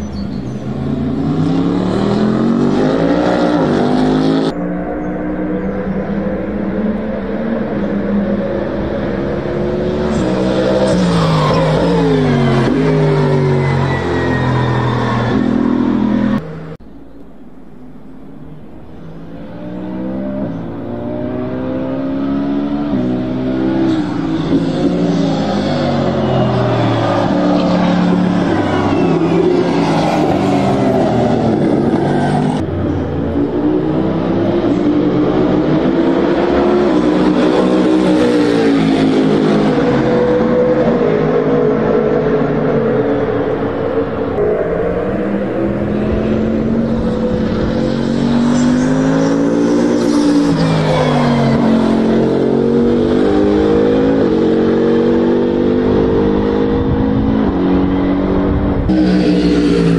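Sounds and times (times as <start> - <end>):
race car passing: 19.1 - 59.9.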